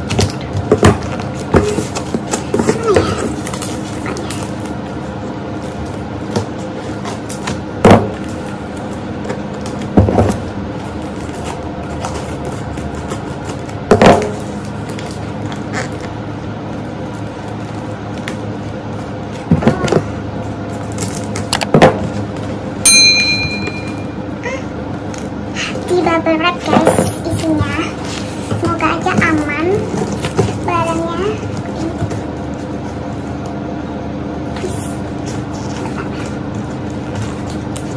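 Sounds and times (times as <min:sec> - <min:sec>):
scissors cutting packing tape: 0:20.8 - 0:21.7.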